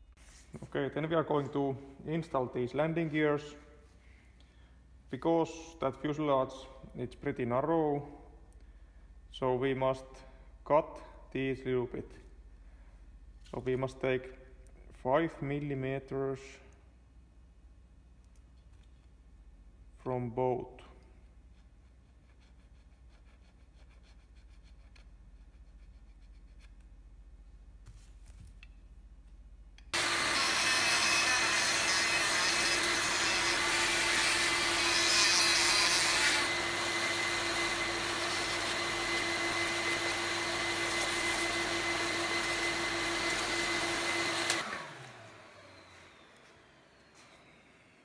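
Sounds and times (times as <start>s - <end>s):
vacuum dust extractor running: 30.0s - 35.0s, 36.4s - 48.0s.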